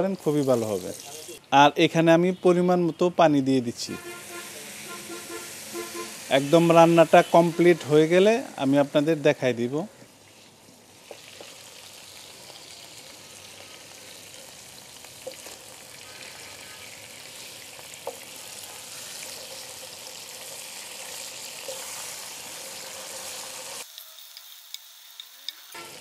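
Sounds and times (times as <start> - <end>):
meat sizzling in hot oil: 0.0 - 1.4, 4.2 - 9.3, 10.1 - 26.0.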